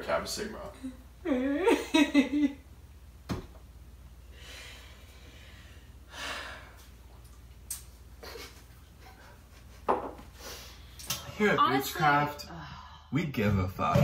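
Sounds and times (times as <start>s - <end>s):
breathy exhale: 4.3s - 6.8s
person laughing: 8.2s - 9.9s.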